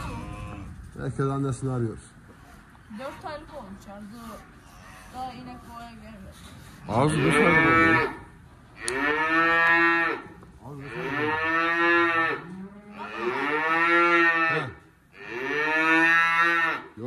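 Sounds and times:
calf mooing: 0.0 - 0.7, 6.9 - 17.0.

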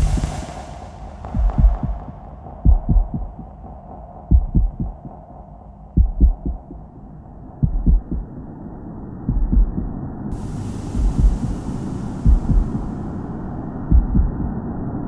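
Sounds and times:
high hiss: 0.0 - 2.6, 10.3 - 13.8
low heartbeat-like thuds: 0.0 - 6.9, 7.6 - 8.4, 9.2 - 12.9, 13.9 - 14.6
steady droning hum: 9.3 - 14.9.

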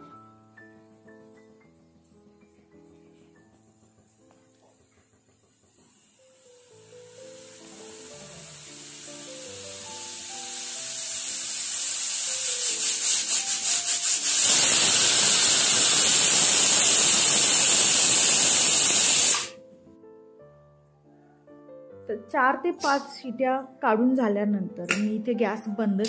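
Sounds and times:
pressure cooker steam hiss: 3.6 - 19.6
pressure cooker whistle: 6.1 - 19.6.

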